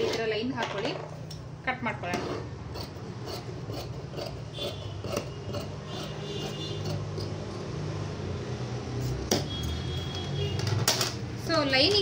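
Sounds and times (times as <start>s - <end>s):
scissors snipping fabric: 2.8s - 7.6s.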